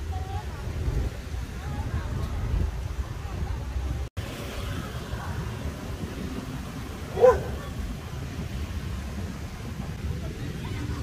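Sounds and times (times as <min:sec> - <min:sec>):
dog barking: 0:07.1 - 0:07.7.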